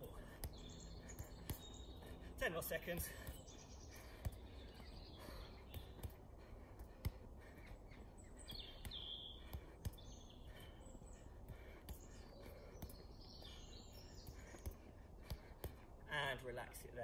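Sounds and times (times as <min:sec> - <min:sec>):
football taps from foot: 0:00.0 - 0:01.9, 0:05.6 - 0:07.2, 0:08.5 - 0:10.2, 0:14.2 - 0:15.8
birds chirping: 0:00.0 - 0:17.0.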